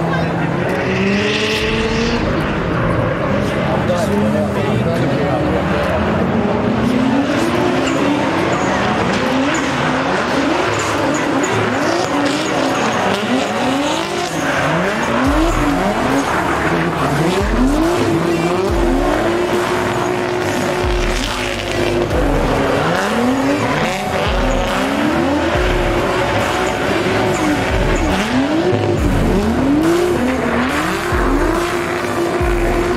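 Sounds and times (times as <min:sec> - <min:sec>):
car engines revving: 0:00.0 - 0:32.9.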